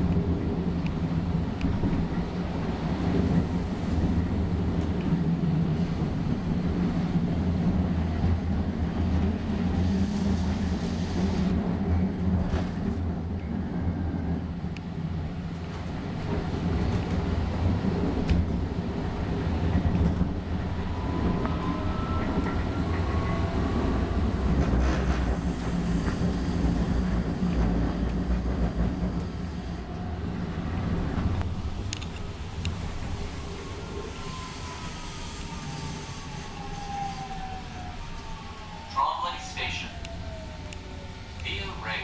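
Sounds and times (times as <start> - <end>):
wheels rumbling on rails: 0.0 - 42.0.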